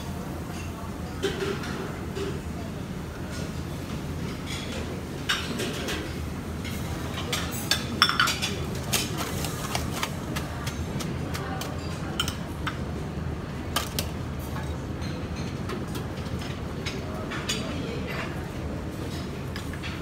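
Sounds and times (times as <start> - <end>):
china dishes clinking: 7.3 - 8.6.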